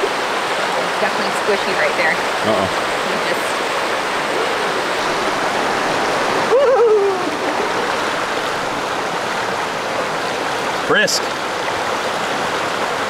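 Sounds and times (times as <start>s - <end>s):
fast-flowing creek: 0.0s - 13.0s
person wavering vocal sound: 6.5s - 7.6s.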